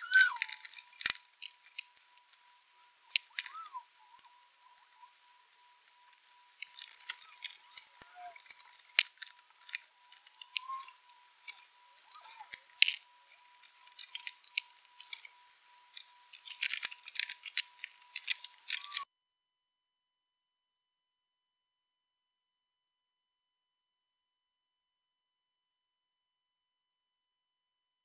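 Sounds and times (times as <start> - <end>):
screwdriver and screws clicking on metal: 0.0 - 19.0
faint steady high tone: 0.0 - 19.1.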